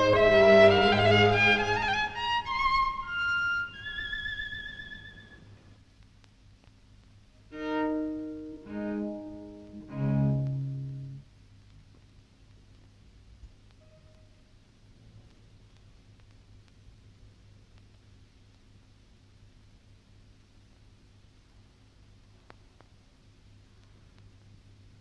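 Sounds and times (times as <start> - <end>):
solo cello: 0.0 - 5.3, 7.5 - 11.3.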